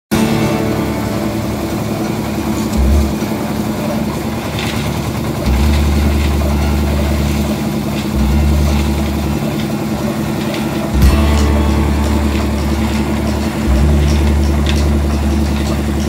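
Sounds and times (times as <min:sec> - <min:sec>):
diesel engine running: 0:00.1 - 0:16.0
wet concrete discharging: 0:00.6 - 0:16.0.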